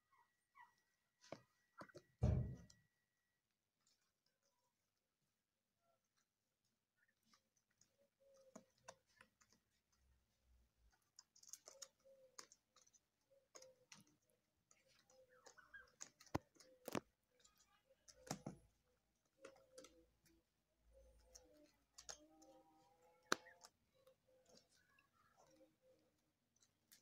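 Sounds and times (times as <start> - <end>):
turkey beaks pecking grass: 7.0 - 27.0.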